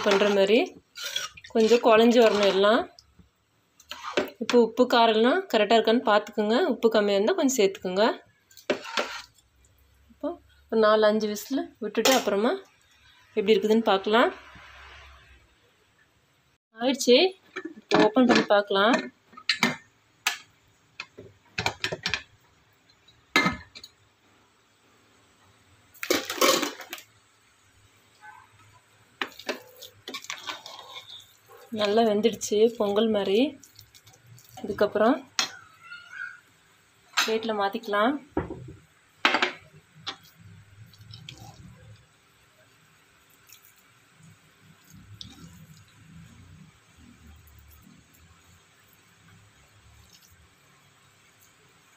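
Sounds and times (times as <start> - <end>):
metal lid scraping clatter: 0.0 - 2.8, 8.7 - 9.3
spoon squishing mushy rice: 40.1 - 42.0, 44.7 - 46.4.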